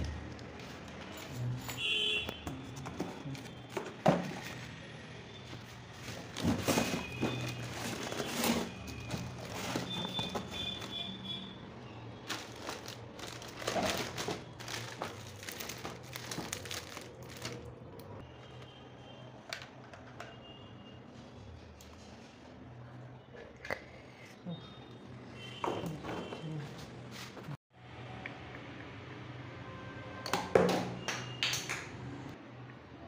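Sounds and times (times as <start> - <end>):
plastic crinkling: 5.4 - 11.4, 12.2 - 18.2
cardboard scraping: 5.5 - 11.0
rustling: 5.5 - 11.0, 12.2 - 17.7.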